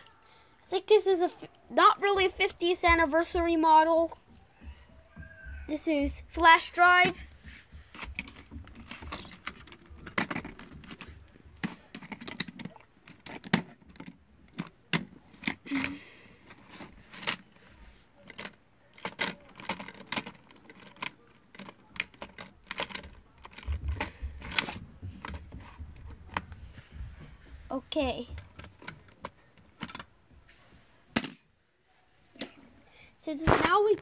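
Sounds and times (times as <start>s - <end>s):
plastic toy parts clicking: 7.9s - 17.4s, 18.2s - 25.4s, 28.4s - 30.1s.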